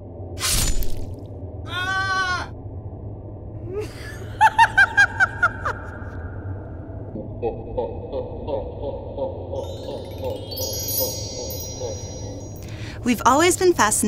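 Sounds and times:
low steady hum: 0.0 - 14.0
sword slash: 0.4 - 1.0.

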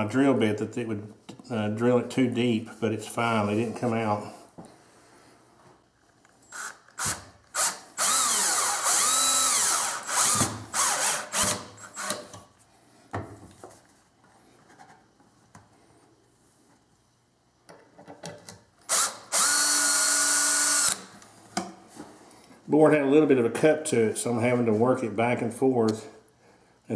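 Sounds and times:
cordless drill driving screws: 6.5 - 12.4, 18.9 - 21.1.

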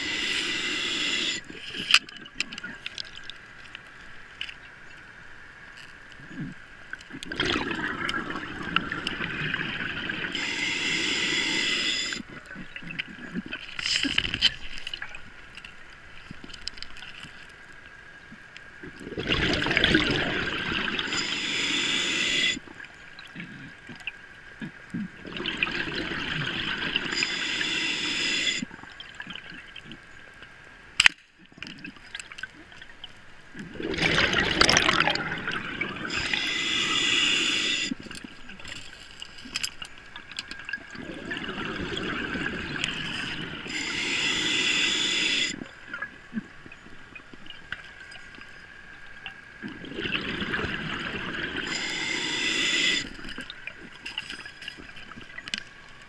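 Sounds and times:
regulator hissing inhalations: 0.0 - 1.5, 10.4 - 12.2, 21.1 - 22.6, 27.1 - 28.7, 36.1 - 38.0, 43.2 - 45.6, 51.6 - 53.2
bubbling exhalations: 7.2 - 10.3, 33.7 - 38.0, 49.6 - 53.3.

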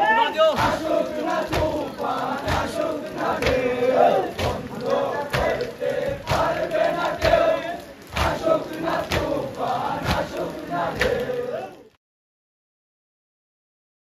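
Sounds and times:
crowd of men chanting: 0.0 - 12.0
heavy beat: 0.5 - 7.5.

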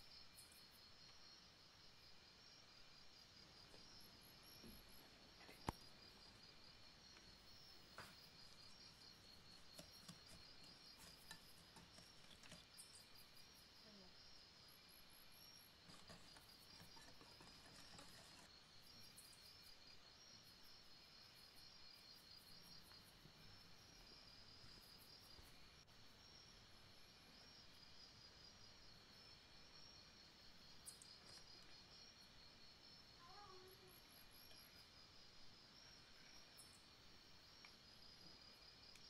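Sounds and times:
faint ticks: 30.8 - 31.8.

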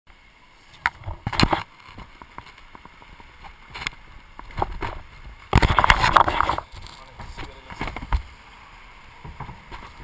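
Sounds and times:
camera being handled and bumped: 0.8 - 2.9, 3.8 - 8.3.

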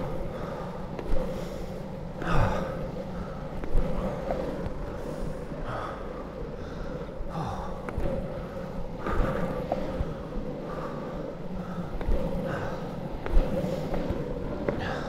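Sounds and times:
longboard wheels rolling on tarmac: 0.0 - 15.0.

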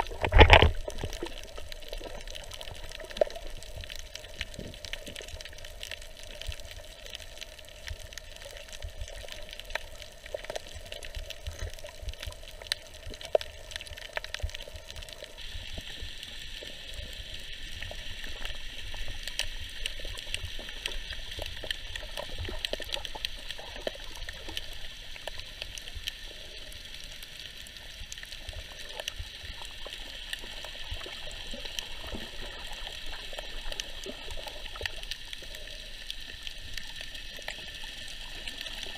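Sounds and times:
small underwater clicks and crackles: 0.0 - 38.9
underwater watery hiss: 12.6 - 38.9.

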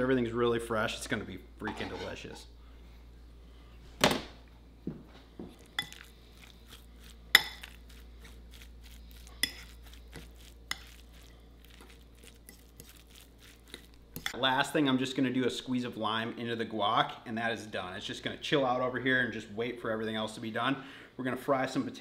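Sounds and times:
fork clinking and scraping bowl: 1.6 - 2.4, 5.6 - 14.4.

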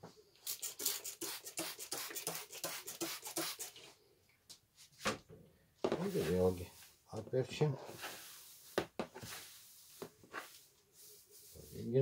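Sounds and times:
spray bottle squirts: 0.4 - 3.8.

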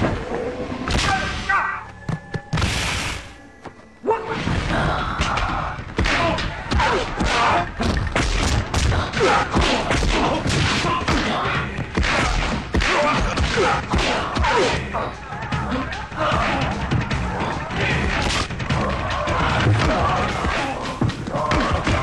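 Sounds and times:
men shouting: 5.1 - 7.8, 9.0 - 22.0.

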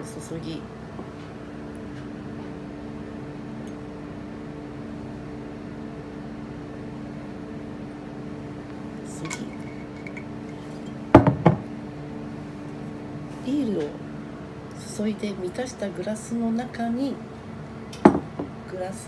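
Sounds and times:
steady low hum: 0.0 - 19.0
bottle knocking on wooden counter: 11.1 - 11.7, 18.0 - 18.5.

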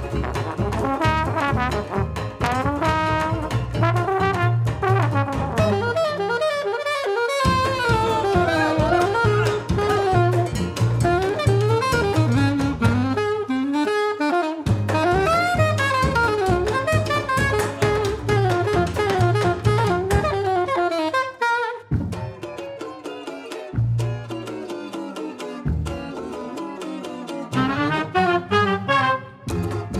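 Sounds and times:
drums: 0.0 - 6.2, 7.4 - 20.7, 21.9 - 22.6, 29.5 - 29.9
banjo: 0.0 - 6.4, 7.4 - 13.2, 14.7 - 20.4, 21.9 - 29.9
double bass: 0.0 - 22.9, 23.7 - 29.9
alto saxophone solo: 4.1 - 22.0, 27.6 - 29.5.

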